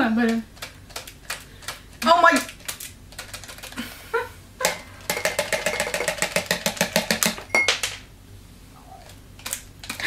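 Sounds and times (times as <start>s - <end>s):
fast run of clicks: 0.2s - 3.8s.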